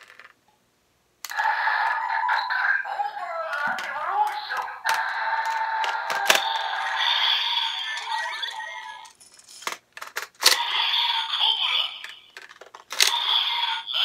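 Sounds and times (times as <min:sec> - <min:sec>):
recorded voice from toy speaker: 0:01.3 - 0:09.1, 0:10.5 - 0:14.0
toy electronic sound effects: 0:01.3 - 0:09.2, 0:10.4 - 0:14.0
plastic clicks: 0:12.0 - 0:13.2.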